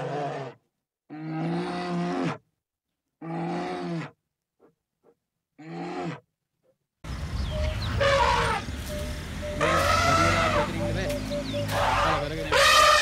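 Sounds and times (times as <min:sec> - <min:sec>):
outdoor noise with low rumble: 0:07.1 - 0:13.0.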